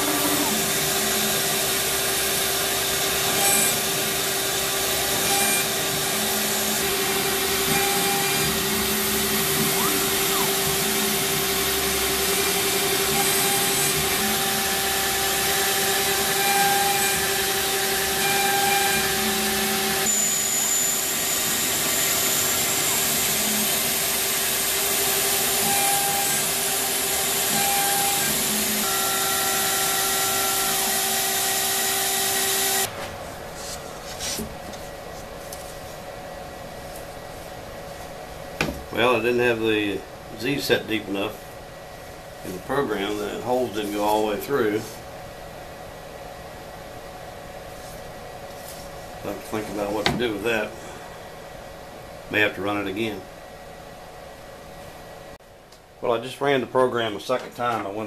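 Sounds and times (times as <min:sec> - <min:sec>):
cnc router cutting: 0:00.0 - 0:32.9
shop vacuums droning: 0:00.0 - 0:36.1, 0:36.8 - 0:45.2, 0:47.6 - 0:53.2.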